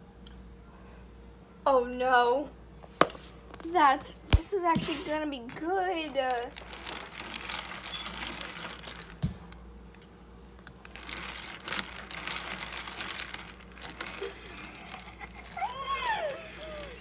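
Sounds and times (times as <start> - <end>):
cereal crumbled in glass bowl: 5.5 - 9.2, 10.6 - 17.0.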